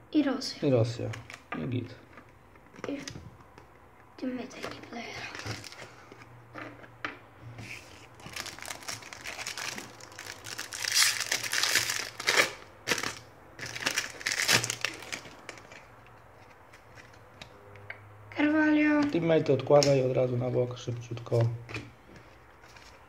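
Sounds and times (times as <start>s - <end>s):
foil wrapper crinkling: 7.6s - 15.9s
cards shuffling: 7.6s - 17.4s.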